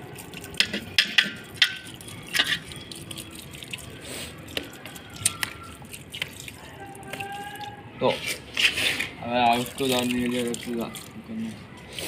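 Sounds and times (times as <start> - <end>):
water dripping onto soil: 0.0 - 7.8, 9.3 - 12.0.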